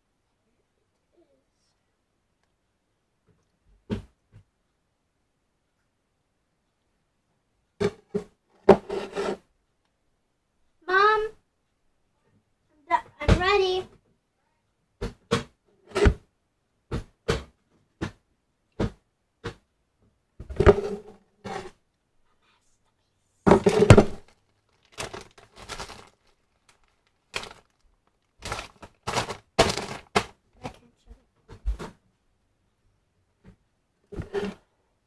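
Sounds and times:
knocks and thumps: 3.7 - 4.5, 7.8 - 9.4, 13.0 - 14.0, 15.0 - 16.3, 16.9 - 19.7, 20.4 - 21.7, 23.4 - 26.1, 28.4 - 30.8, 31.4 - 32.0.

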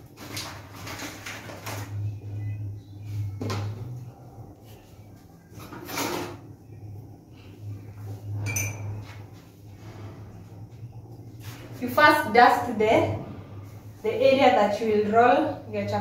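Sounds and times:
steady low hum: 1.2 - 16.0
dishes and utensils clattering: 5.6 - 6.4, 8.3 - 9.4.

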